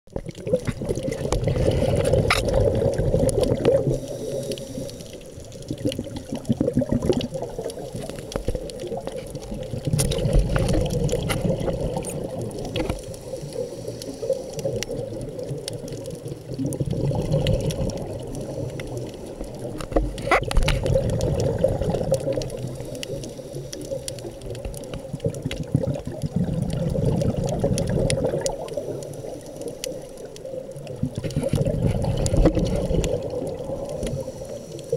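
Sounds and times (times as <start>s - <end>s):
underwater exhaust bubbles: 0.1s - 34.9s
faint clicks: 7.1s - 34.9s.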